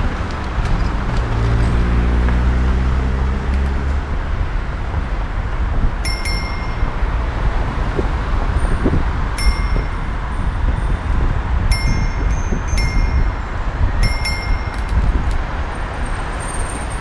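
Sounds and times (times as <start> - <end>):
car engine passing: 0.0 - 5.9
street traffic noise: 0.0 - 17.0
bicycle bell ding: 6.0 - 7.1, 9.3 - 11.1, 11.7 - 13.4, 14.0 - 15.1.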